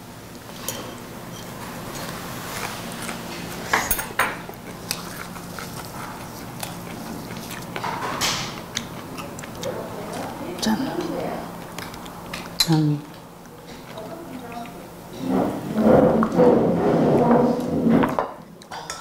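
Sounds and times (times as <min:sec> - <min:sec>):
utensils clinking on plates: 0:00.5 - 0:02.7, 0:03.3 - 0:04.5, 0:12.3 - 0:13.0, 0:14.6 - 0:19.0.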